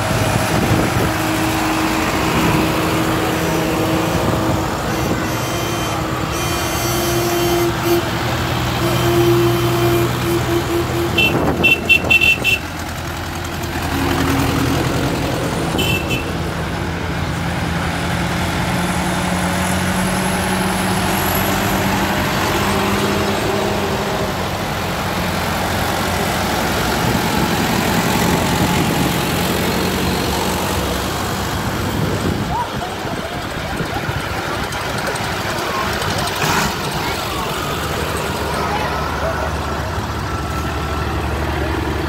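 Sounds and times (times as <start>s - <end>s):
tractor diesel engines running: 0.0s - 42.0s
horn short toots: 4.2s - 8.2s, 8.8s - 12.7s, 15.7s - 16.3s.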